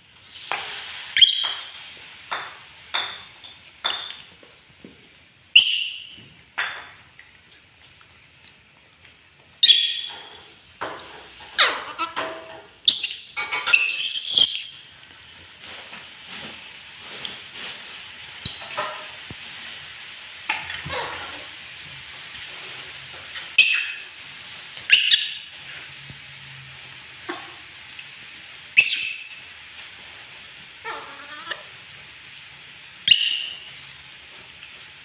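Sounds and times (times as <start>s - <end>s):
monkey screeching: 11.6s - 12.2s, 12.9s - 14.7s, 30.9s - 31.6s.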